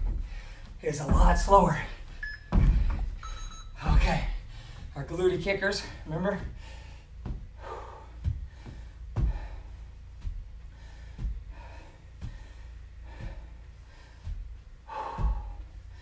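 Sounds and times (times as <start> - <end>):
man breathing hard: 0.0 - 0.8, 4.2 - 5.0, 5.8 - 16.0
footfalls thudding on floor: 0.0 - 4.9, 6.3 - 15.7.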